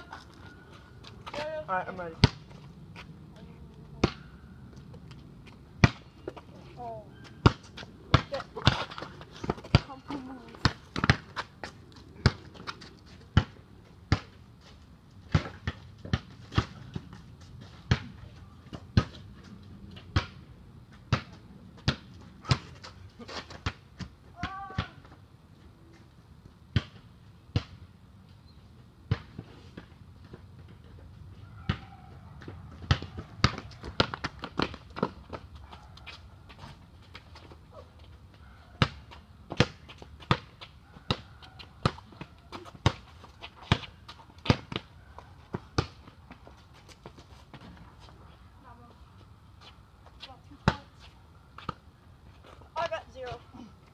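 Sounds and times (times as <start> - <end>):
basketball bouncing on hard court: 7.4 - 11.5, 31.6 - 35.4.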